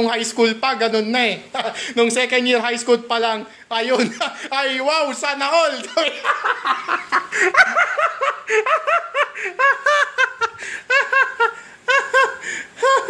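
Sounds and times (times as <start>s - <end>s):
high-pitched laughter: 5.9s - 13.0s.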